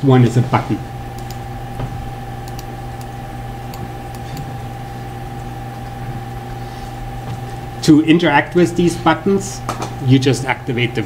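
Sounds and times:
faint constant whine: 0.0s - 11.0s
steady low hum: 0.0s - 11.0s
computer mouse clicks: 1.2s - 1.4s, 2.4s - 3.1s.

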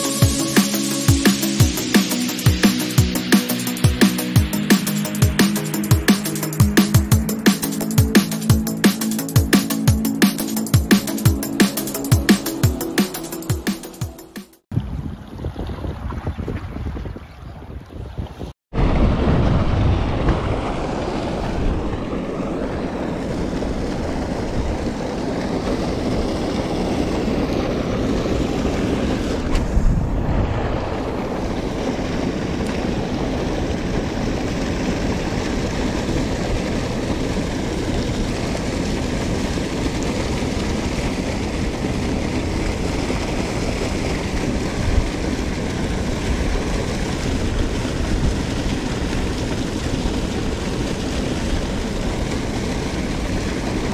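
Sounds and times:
wind rumble on microphone: 14.7s - 53.9s
waves washing against rocks: 18.8s - 53.9s.

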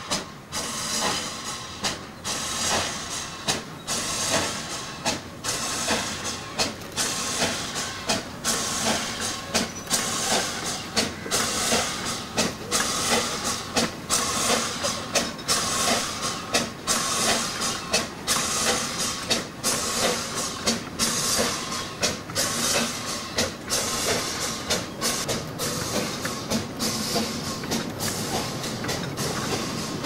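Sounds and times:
steam locomotive hiss and exhaust beats: 0.0s - 30.0s.

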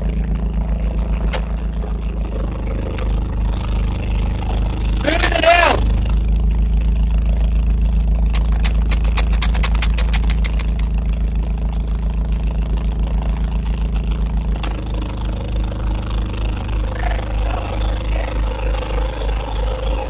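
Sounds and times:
diesel engine running: 0.0s - 20.0s
sharp clicks: 8.3s - 10.9s.

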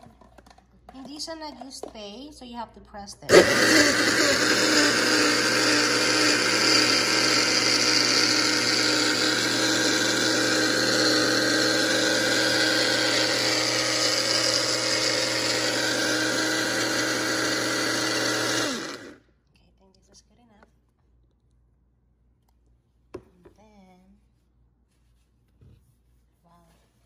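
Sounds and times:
blender motor running: 3.3s - 19.2s.

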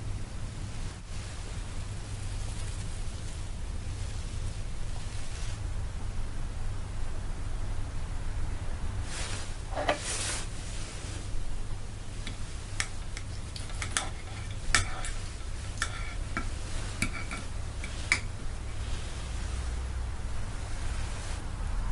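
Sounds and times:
fork scraping on ceramic plate: 13.5s - 18.3s.

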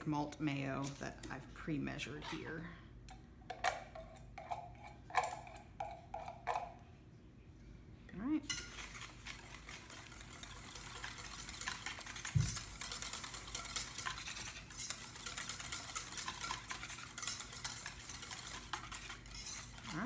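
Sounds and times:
whisk scraping metal bowl: 8.5s - 20.0s.

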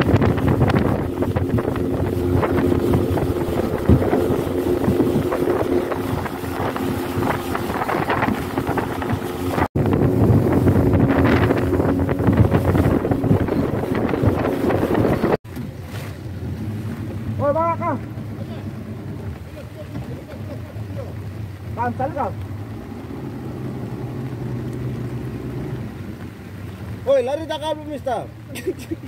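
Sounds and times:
wind buffeting microphone: 0.0s - 27.1s
outboard motor running: 0.0s - 29.0s
water rushing against hull: 0.0s - 29.0s.

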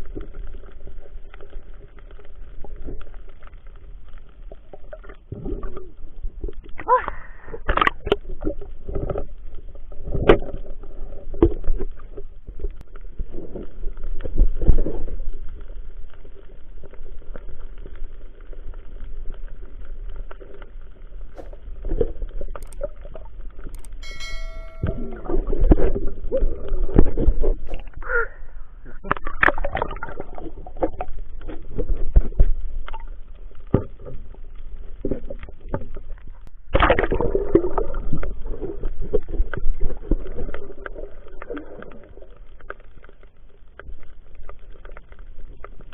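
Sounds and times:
muffled water sloshing and gurgling: 0.0s - 45.9s
low thumps and splashes: 21.3s - 28.2s, 28.8s - 32.9s, 33.6s - 42.1s.

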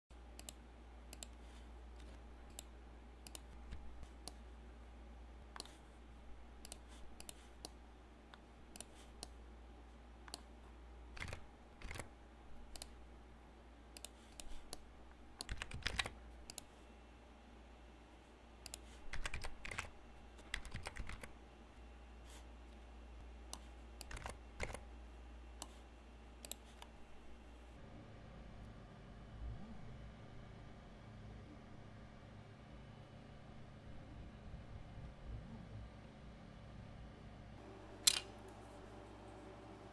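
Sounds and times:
steady low hum: 0.1s - 39.9s
keyboard and mouse clicking: 0.4s - 1.4s, 2.0s - 4.4s, 5.5s - 5.8s, 6.6s - 9.4s, 11.2s - 12.1s, 12.7s - 13.0s, 14.0s - 16.7s, 18.6s - 21.3s, 23.5s - 24.8s, 38.0s - 38.3s.

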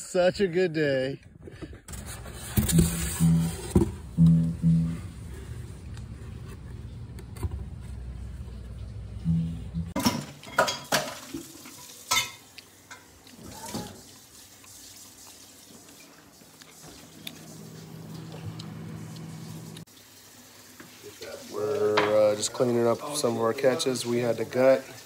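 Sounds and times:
low steady hum: 2.7s - 10.0s.

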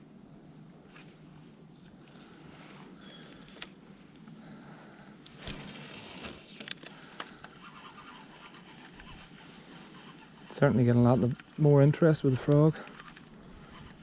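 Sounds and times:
rod swish and line running off: 5.3s - 6.7s.

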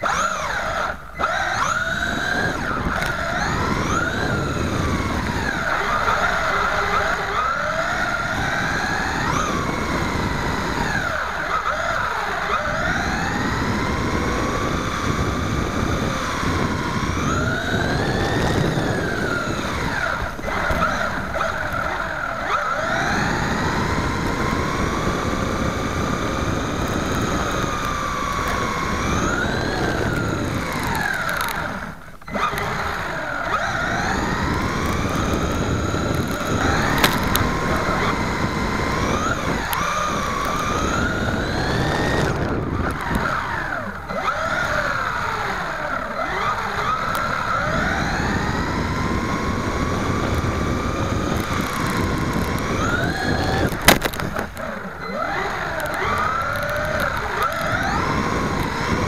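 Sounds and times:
electric motor and gears whining: 0.0s - 59.0s.

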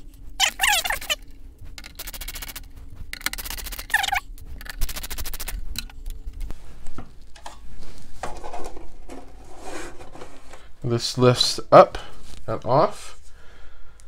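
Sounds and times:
screwdriver rapid clicking: 1.8s - 6.0s
loose screws clicking: 3.2s - 6.1s.

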